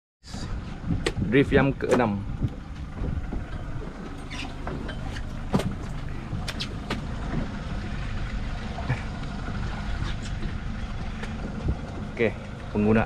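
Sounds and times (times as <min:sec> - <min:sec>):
boat engine low rumble: 0:00.2 - 0:13.0.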